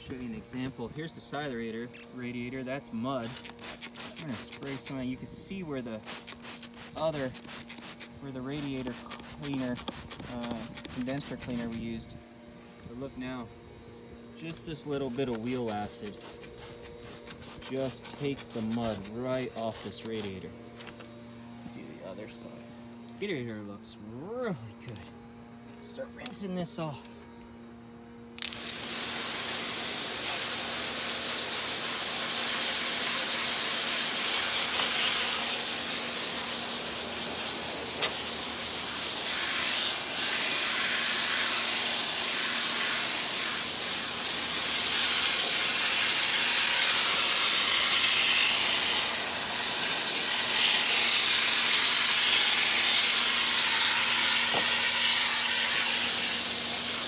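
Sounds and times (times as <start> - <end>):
water jet hissing on radiator: 28.6 - 57.0.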